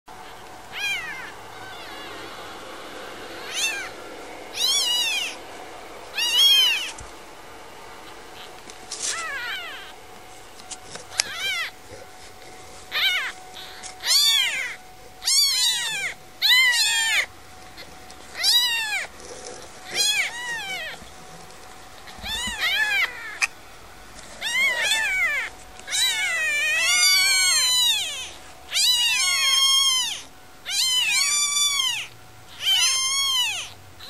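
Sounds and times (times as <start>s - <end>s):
kittens mewing: 0.2s - 7.2s, 7.9s - 33.8s.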